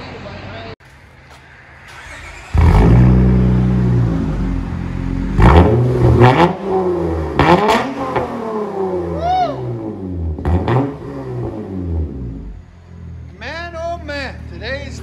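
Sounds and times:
car engine starting and revving: 1.8s - 13.3s.

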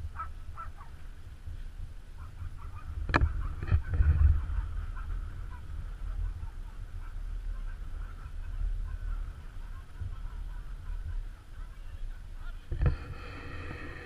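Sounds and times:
wind rumble on microphone: 0.0s - 14.0s
waterfowl calls: 0.1s - 1.0s, 2.2s - 14.0s.

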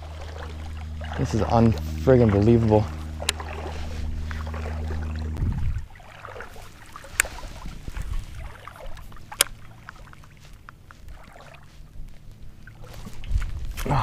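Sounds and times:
low rumble: 0.0s - 14.0s
fishing reel clicks: 9.3s - 9.6s.

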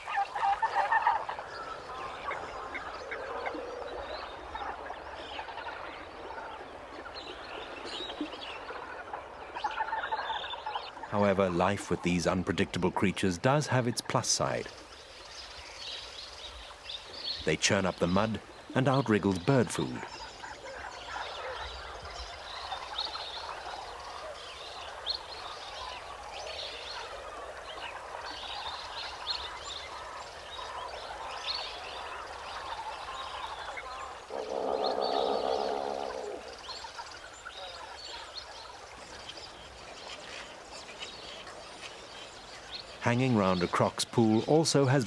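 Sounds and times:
chorus of high bird calls: 0.0s - 45.0s
loud low bird call: 33.8s - 36.8s.

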